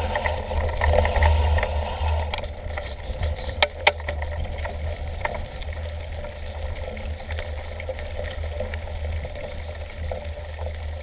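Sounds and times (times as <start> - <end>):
bike rolling on dirt: 0.0 - 11.0
wind rumbling on microphone: 0.0 - 11.0
bike jolting clicks: 2.3 - 5.4.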